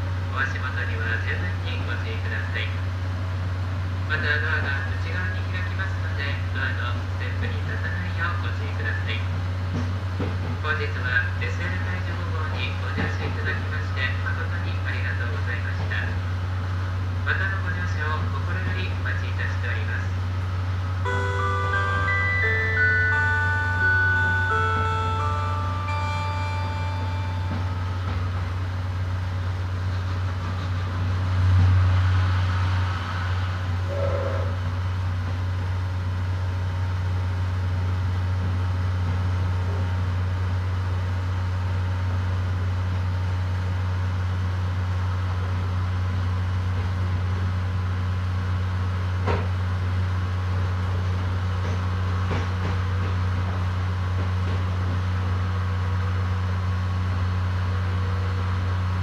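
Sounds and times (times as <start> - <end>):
diesel generator engine drone: 0.0 - 59.0
onboard chime: 21.0 - 28.5.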